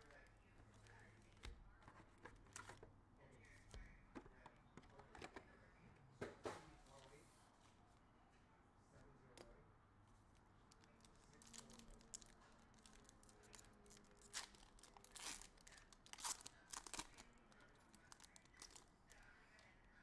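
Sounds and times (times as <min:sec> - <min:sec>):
foil wrapper tearing and crinkling: 0:10.7 - 0:18.9.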